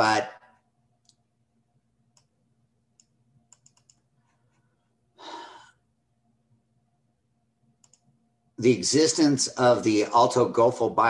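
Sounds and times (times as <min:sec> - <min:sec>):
faint steady hum: 0:00.0 - 0:11.0
computer mouse clicks: 0:01.0 - 0:01.2, 0:02.1 - 0:02.3, 0:03.0 - 0:04.1, 0:07.8 - 0:08.1
short breath: 0:04.4 - 0:05.8.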